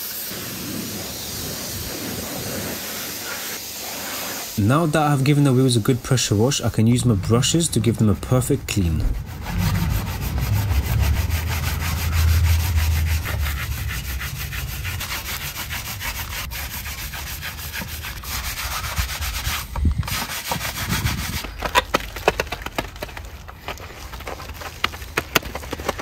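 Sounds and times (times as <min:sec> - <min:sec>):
brush scrubbing wet wheel: 0:00.0 - 0:22.0
low hum: 0:06.2 - 0:18.3
brush knocks: 0:08.7 - 0:12.0.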